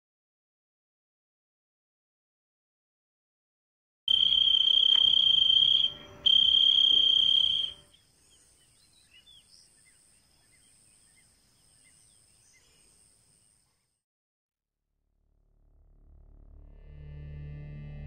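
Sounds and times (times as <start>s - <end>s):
high-pitched insect drone: 4.1s - 7.9s
insects chirring and chirping: 4.1s - 13.8s.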